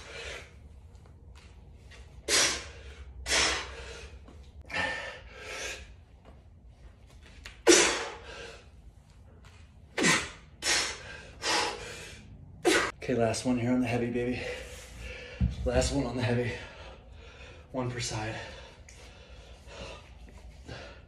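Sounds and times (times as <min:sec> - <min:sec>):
man breathing hard: 0:00.0 - 0:00.8, 0:02.1 - 0:06.3, 0:07.6 - 0:08.9, 0:10.0 - 0:12.9, 0:14.2 - 0:21.0.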